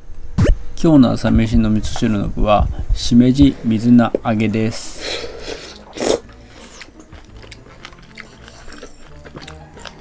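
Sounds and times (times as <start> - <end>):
person slurping soup: 5.0 - 7.0
quiet chewing: 5.3 - 10.0.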